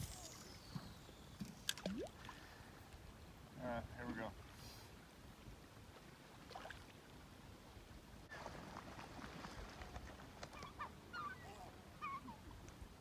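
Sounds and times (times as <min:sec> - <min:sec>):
river ambience: 0:00.0 - 0:13.0
faint bird calls: 0:10.4 - 0:12.5.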